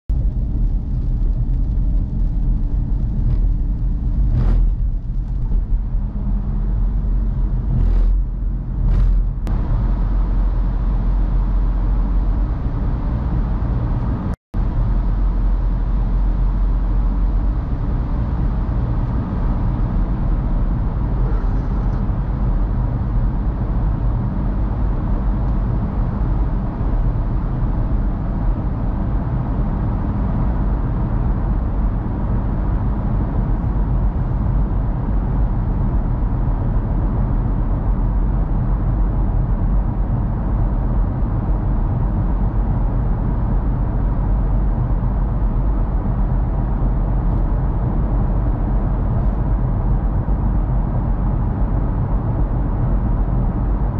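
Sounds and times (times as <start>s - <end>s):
car driving on a wet road: 0.2s - 53.9s
brief swishes: 8.8s - 9.5s.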